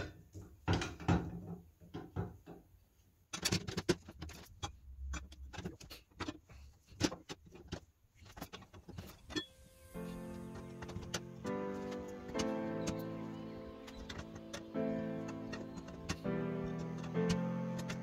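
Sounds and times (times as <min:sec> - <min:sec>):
metal plates clicking and clinking: 0:10.3 - 0:18.0.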